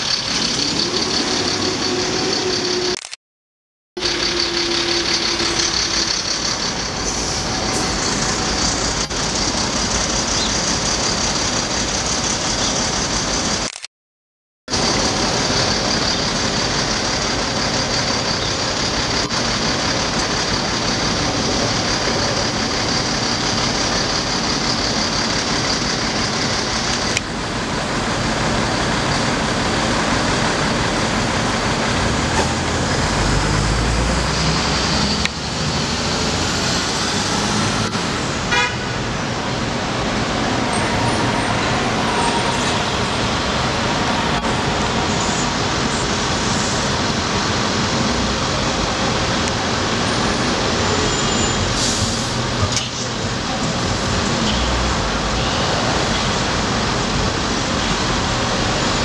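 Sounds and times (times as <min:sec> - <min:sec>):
heavy low engine rumble: 0:00.0 - 0:03.1, 0:04.0 - 0:13.8, 0:14.7 - 0:59.0
street traffic: 0:00.0 - 0:03.2, 0:04.0 - 0:13.9, 0:14.7 - 0:59.0.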